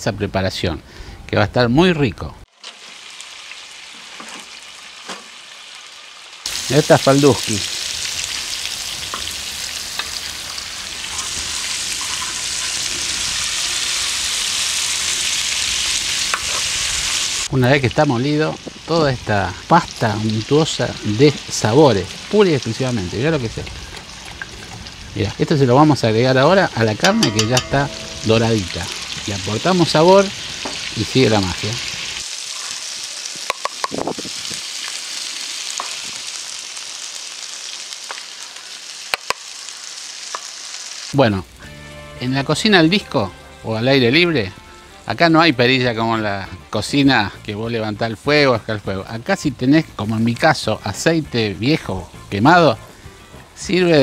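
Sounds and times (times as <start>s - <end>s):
meat sizzling in hot fat: 2.5s - 42.2s.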